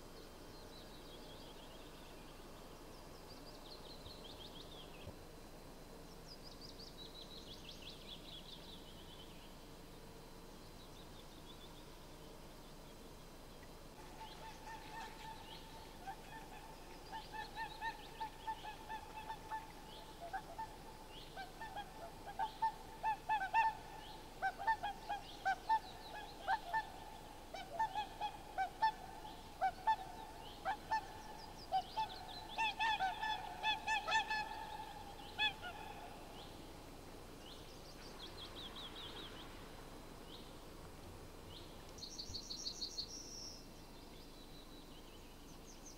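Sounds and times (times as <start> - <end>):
songbirds chirping: 0.0 - 45.9
swans honking: 14.0 - 20.8.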